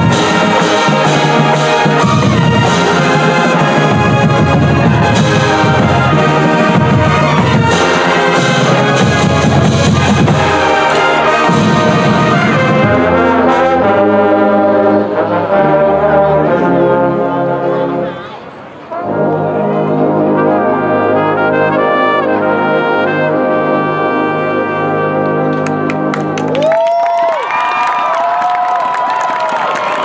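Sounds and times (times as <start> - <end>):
percussion hits: 0.0 - 13.7
brass band music: 0.0 - 26.8.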